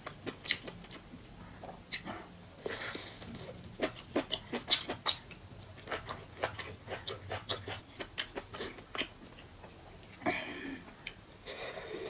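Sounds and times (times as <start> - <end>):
wet chewing and lip smacking: 3.2 - 9.8.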